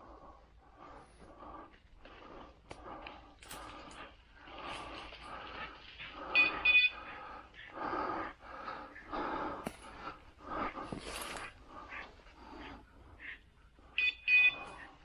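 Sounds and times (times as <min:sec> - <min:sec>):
person breathing: 0:00.0 - 0:14.0
rustling through undergrowth: 0:01.8 - 0:07.6, 0:09.2 - 0:12.7
short electronic beeps: 0:06.4 - 0:06.9, 0:14.0 - 0:14.8.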